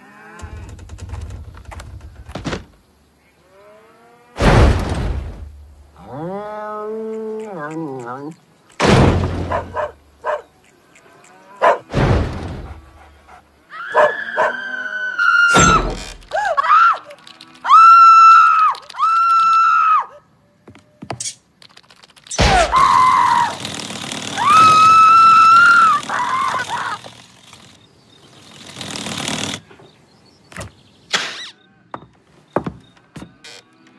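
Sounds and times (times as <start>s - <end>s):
heavy cartoon thuds: 4.4s - 5.6s, 8.8s - 10.0s, 11.8s - 13.2s, 15.5s - 16.3s, 22.4s - 23.0s
woman screaming high-pitched: 16.3s - 20.2s.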